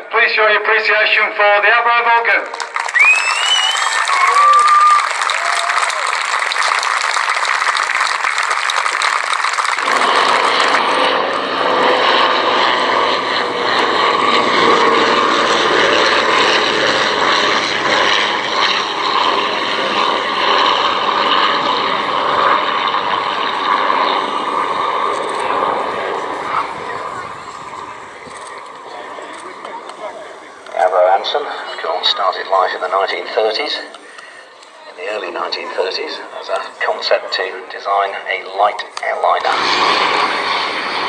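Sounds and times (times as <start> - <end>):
crowd applause: 2.5 - 11.0
propeller aircraft engine running: 6.1 - 41.0.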